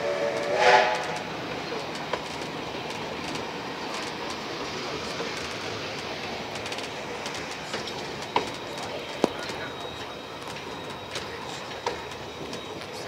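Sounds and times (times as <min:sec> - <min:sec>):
train rumbling on track: 0:00.0 - 0:13.0.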